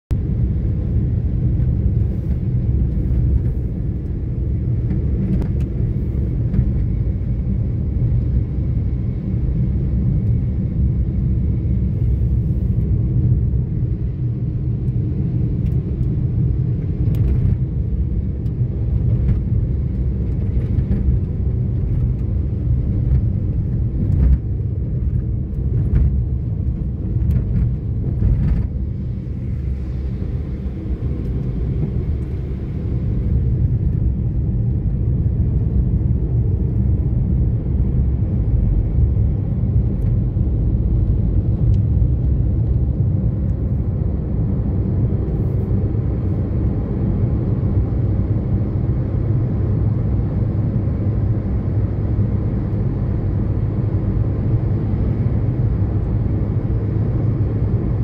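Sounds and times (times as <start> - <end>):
car engine and tyres rumbling: 0.1 - 58.0.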